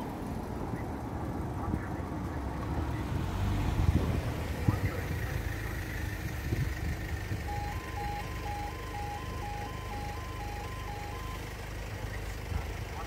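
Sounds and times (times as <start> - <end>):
level crossing alarm two-tone beep: 7.5 - 11.4.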